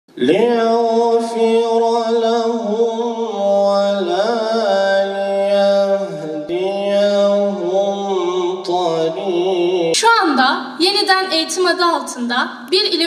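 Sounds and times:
man singing unaccompanied: 0:00.1 - 0:10.0.

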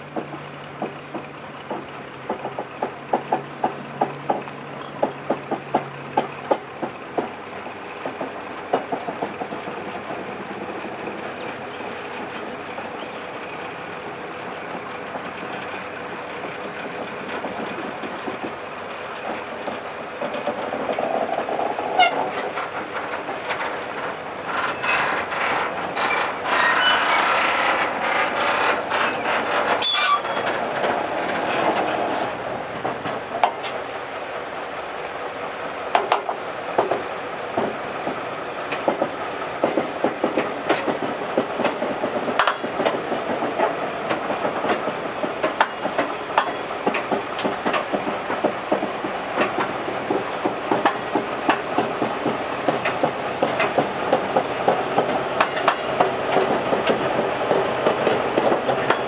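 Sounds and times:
diesel locomotive engine hum: 0:00.0 - 0:59.0
wheels rolling on rails: 0:00.0 - 0:59.0
metallic clanks and squeaks: 0:21.9 - 0:22.7, 0:24.5 - 0:31.0, 0:55.4 - 0:56.6.

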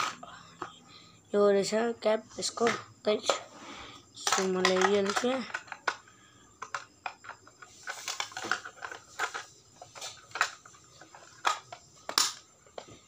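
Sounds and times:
plastic casing clicks and knocks: 0:11.3 - 0:12.9.

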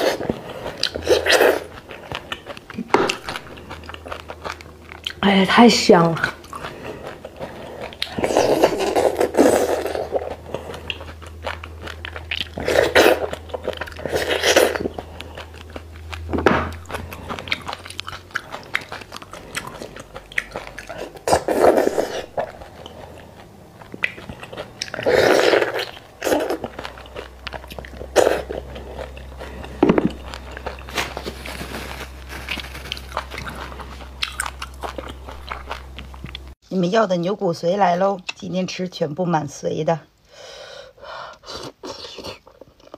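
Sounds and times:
wet chewing and lip smacks: 0:10.0 - 0:21.3, 0:22.2 - 0:30.9.

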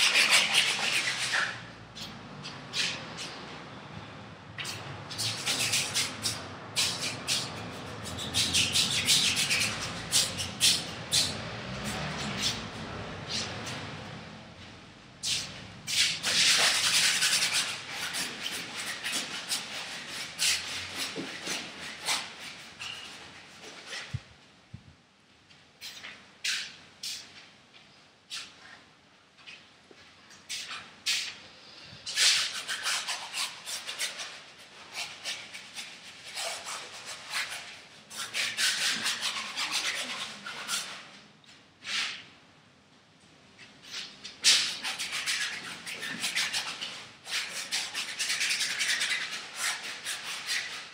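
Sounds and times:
tool scrubbing canvas: 0:00.0 - 0:03.5, 0:04.6 - 0:13.9, 0:15.2 - 0:24.3, 0:30.5 - 0:41.2, 0:43.8 - 0:50.9.

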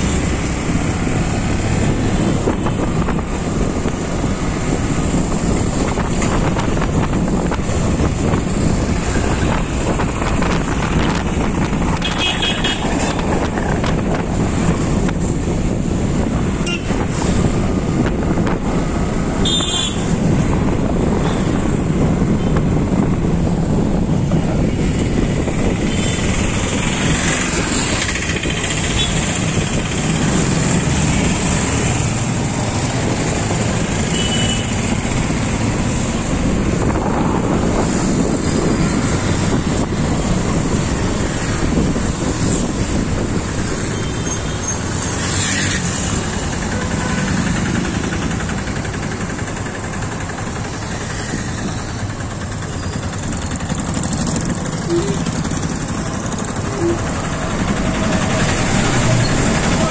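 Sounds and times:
road vehicles: 0:00.0 - 0:59.9
wind rushing over microphone: 0:00.0 - 0:59.9
motorcycle engine running: 0:45.8 - 0:59.9
short high beeps: 0:54.9 - 0:55.2.

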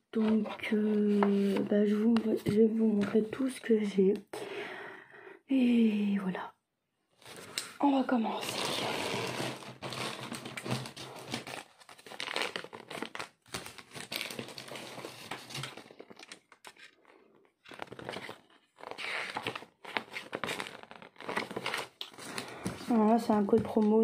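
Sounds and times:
plastic bag and paper rustling: 0:07.2 - 0:24.0.

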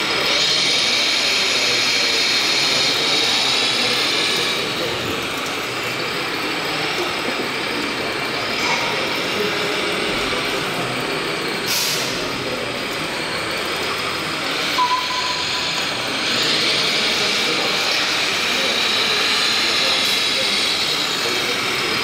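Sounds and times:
busy exhibition hall noise: 0:00.0 - 0:22.0
short sharp hiss: 0:11.7 - 0:12.2
brief beep: 0:14.8 - 0:15.8.

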